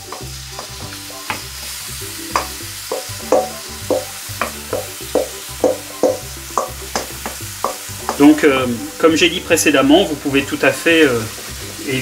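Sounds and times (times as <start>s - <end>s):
wooden spoon knocking on bowl and pan: 0.0s - 1.6s, 2.3s - 8.4s
background music with low notes: 0.0s - 12.0s
chicken sizzling in a frying pan: 0.0s - 12.0s.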